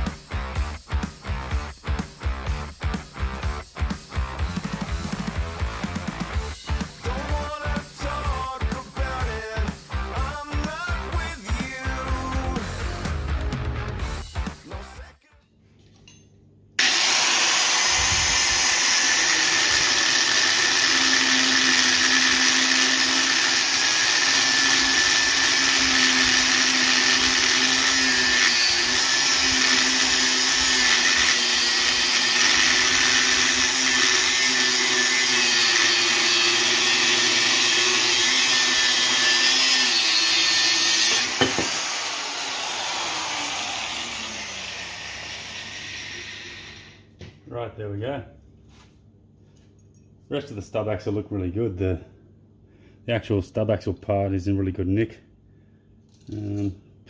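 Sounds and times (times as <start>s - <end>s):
angle grinder cutting metal: 16.8s - 47.1s.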